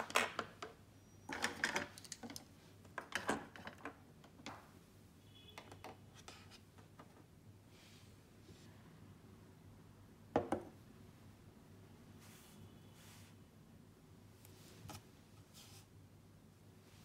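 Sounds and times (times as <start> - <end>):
plastic pens clattering on table: 1.3 - 4.6.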